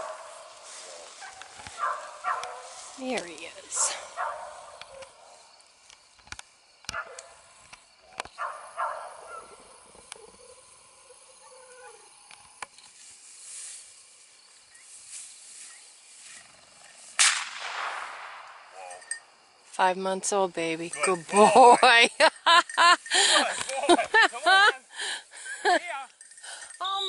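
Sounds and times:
rustling through tall grass: 0.0s - 6.1s, 12.6s - 18.2s.

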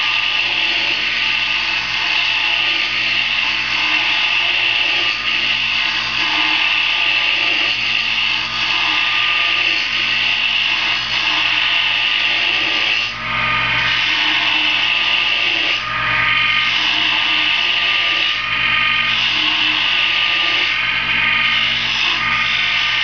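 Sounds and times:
lathe motor hum: 0.0s - 23.0s
lathe tool scraping wood: 0.0s - 23.0s.

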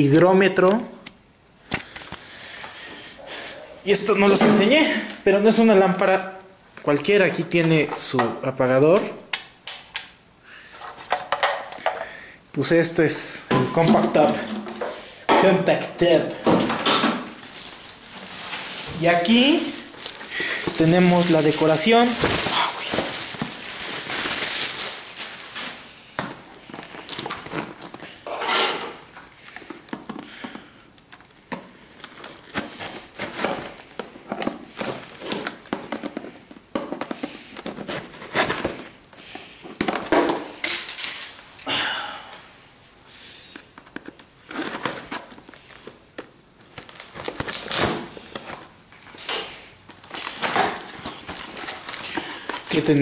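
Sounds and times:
plastic packaging crinkling: 15.8s - 28.3s, 28.9s - 41.7s, 43.5s - 53.0s.

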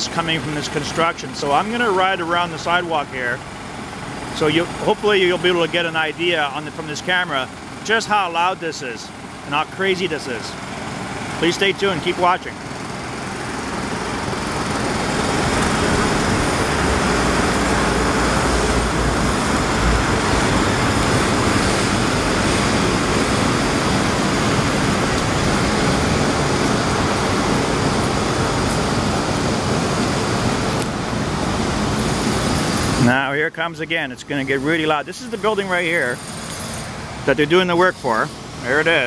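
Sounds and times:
construction site noise: 0.0s - 39.0s
heavy low rumble: 13.9s - 33.1s.

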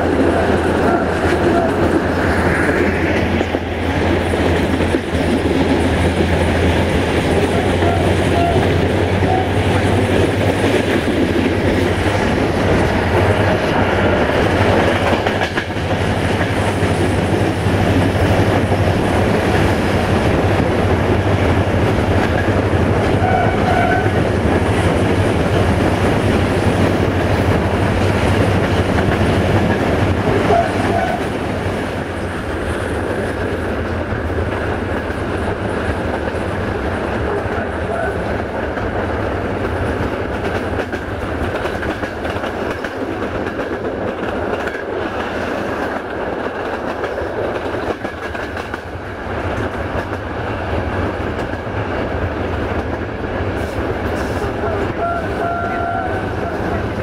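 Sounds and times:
diesel locomotive drone: 0.0s - 57.0s
train wheels on rails: 0.0s - 57.0s.

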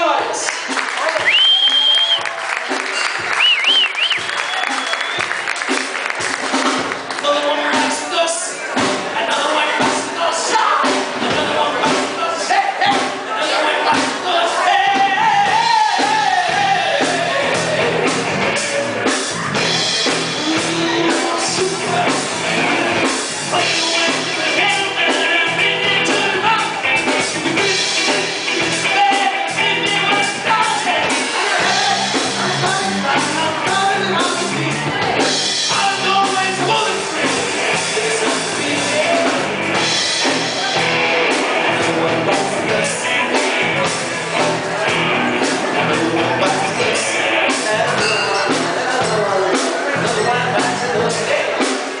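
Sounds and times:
bass guitar: 0.0s - 52.0s
drum kit: 0.0s - 52.0s
male singer: 7.2s - 19.0s, 20.3s - 39.6s, 40.6s - 51.8s
distorted electric guitar: 12.8s - 52.0s.

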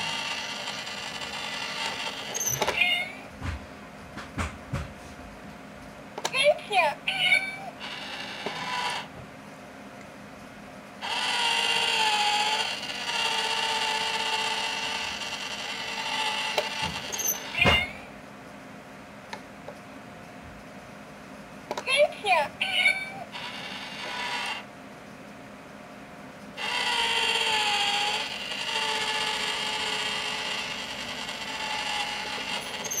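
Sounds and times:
small electric motor whirring: 0.0s - 3.0s, 7.8s - 9.1s, 11.0s - 17.9s, 23.3s - 24.7s, 26.6s - 33.0s.

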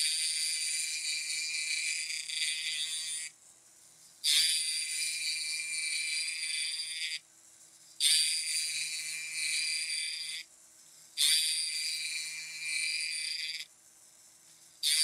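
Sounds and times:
checkering tool cutting wood: 0.0s - 3.3s.

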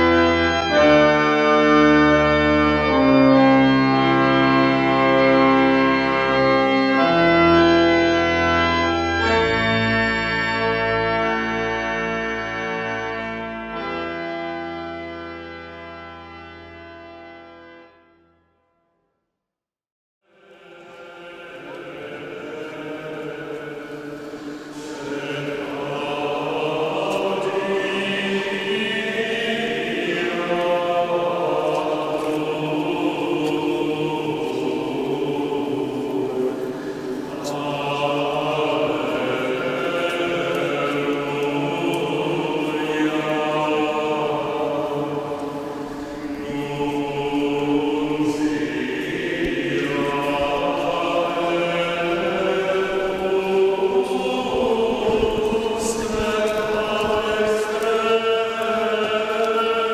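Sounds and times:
male choir chanting a cappella: 0.0s - 8.5s, 20.2s - 59.9s.

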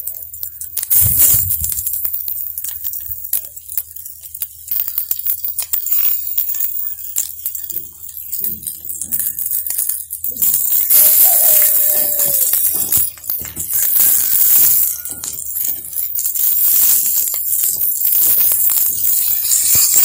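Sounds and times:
oil sizzling in a pan: 9.1s - 16.2s.

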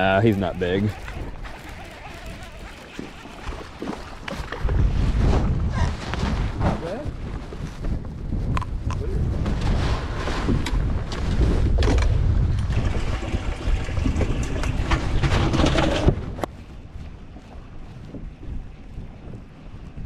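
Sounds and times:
handling rustle: 0.0s - 8.8s
wind buffeting microphone: 0.0s - 20.0s.

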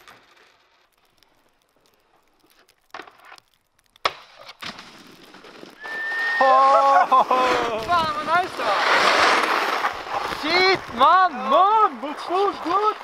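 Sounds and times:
snowboard landing thud: 4.0s - 5.7s
snowboard scraping on snow: 4.3s - 13.0s.

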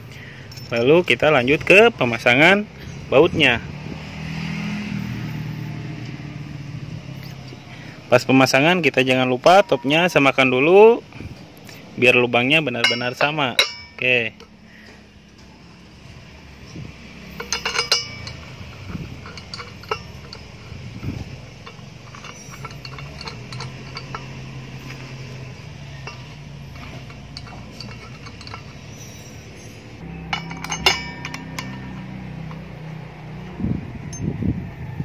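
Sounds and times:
light metallic clinks and ticks: 0.0s - 2.2s, 12.6s - 15.9s, 16.6s - 33.5s.

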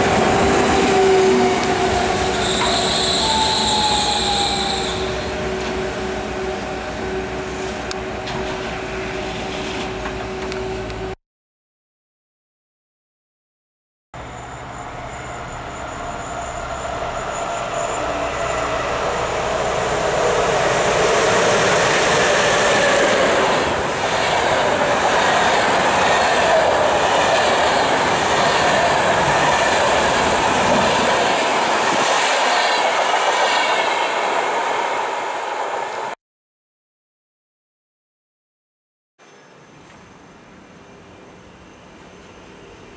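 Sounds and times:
passenger train passing: 0.0s - 11.2s, 14.2s - 36.2s, 39.3s - 42.9s
train wheels on rails: 0.0s - 11.2s, 14.2s - 36.2s.

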